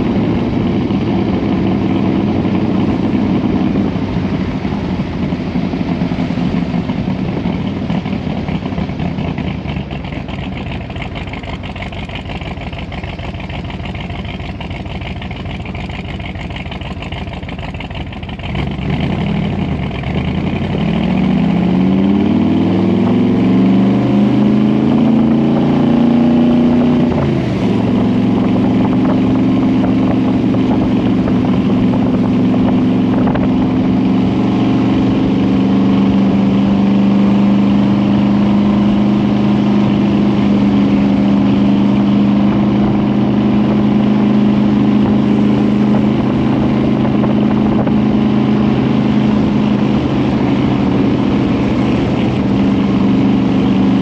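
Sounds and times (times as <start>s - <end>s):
car engine accelerating: 0.0s - 54.0s.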